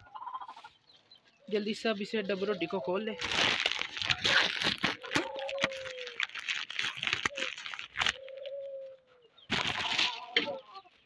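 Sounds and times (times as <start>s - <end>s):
chicken calling: 0.0s - 1.6s, 4.9s - 11.0s
plastic packet crinkling: 3.2s - 8.5s, 9.5s - 10.3s.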